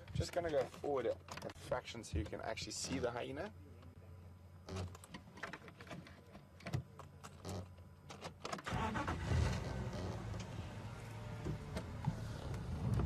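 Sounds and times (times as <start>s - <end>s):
vehicle engine starting and running: 8.6s - 13.0s.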